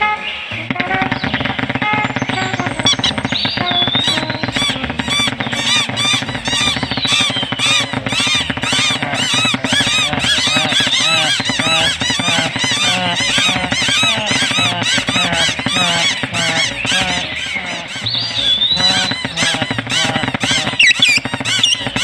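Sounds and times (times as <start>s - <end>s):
low babble of bird voices: 0.0s - 22.0s
cartoon birds squeaky chirps: 0.6s - 22.0s.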